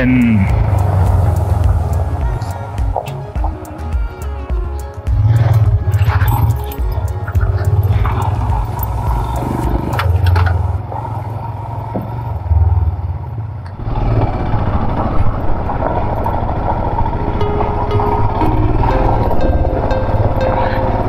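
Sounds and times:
motorcycle engine thumping: 0:06.8 - 0:10.8.

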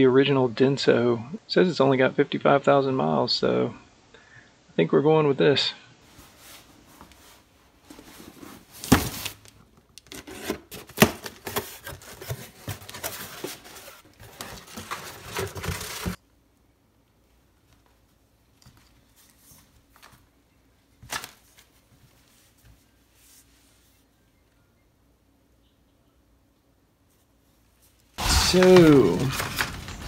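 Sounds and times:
cardboard crinkling and tearing: 0:08.6 - 0:16.2, 0:28.2 - 0:30.0.

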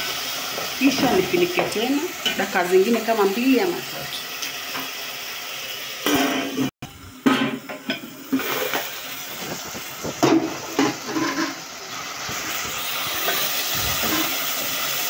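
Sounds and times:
sauce sizzling in metal pot: 0:00.0 - 0:15.0
metal pot lid clanking: 0:09.9 - 0:11.7.

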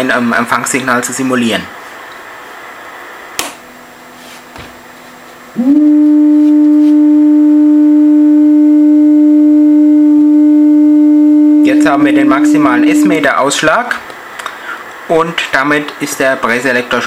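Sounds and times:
steady radio beat tone: 0:11.2 - 0:13.6.

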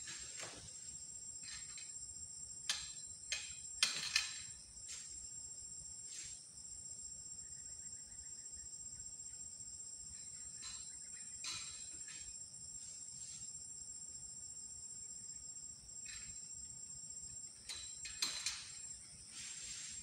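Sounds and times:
high-pitched insect drone: 0:06.1 - 0:20.0.

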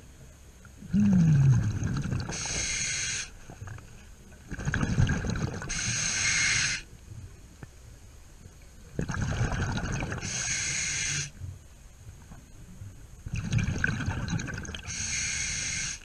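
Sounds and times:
bubbling exhale underwater: 0:00.8 - 0:02.9, 0:04.5 - 0:06.0, 0:09.0 - 0:10.6, 0:13.3 - 0:15.9
regulator inhale hiss: 0:02.3 - 0:03.5, 0:05.7 - 0:06.9, 0:10.2 - 0:11.4, 0:14.8 - 0:16.0.

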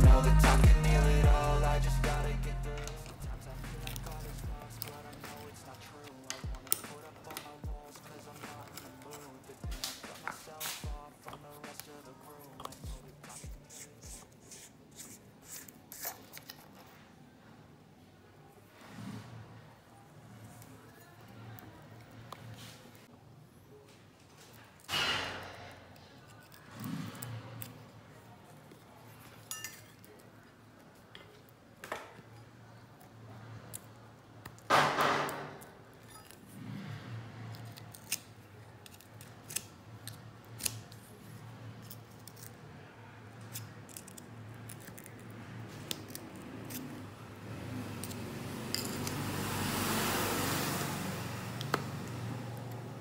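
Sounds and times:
metal tools clinking: 0:29.2 - 0:30.2, 0:36.0 - 0:36.4.

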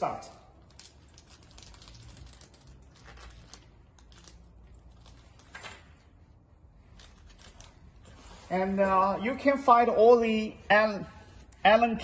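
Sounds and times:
plastic bags crinkling: 0:00.5 - 0:05.7, 0:06.8 - 0:08.3.

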